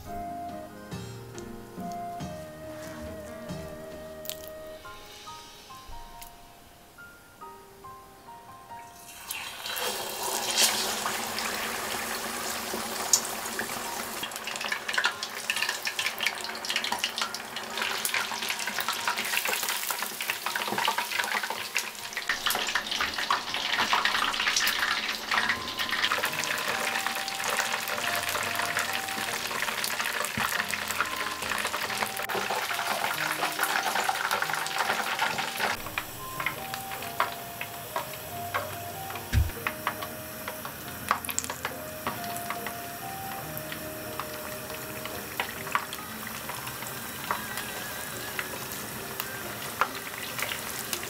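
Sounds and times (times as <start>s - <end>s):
chicken deep-frying in hot oil: 8.8s - 51.0s.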